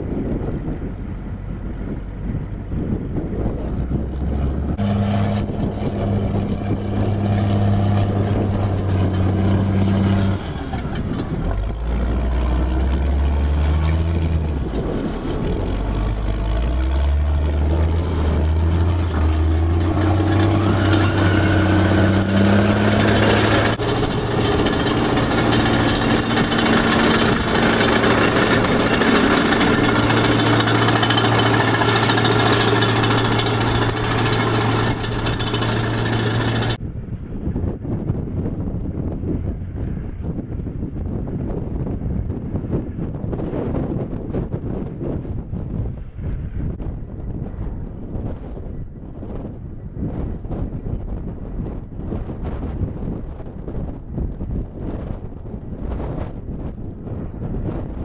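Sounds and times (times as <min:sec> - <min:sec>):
bulldozer diesel engine running hard: 0:00.0 - 0:58.0
machine clatter: 0:04.2 - 0:36.8.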